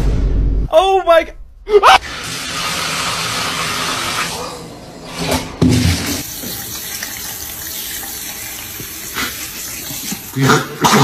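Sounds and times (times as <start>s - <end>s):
water running from faucet: 2.0s - 4.8s, 5.8s - 11.0s.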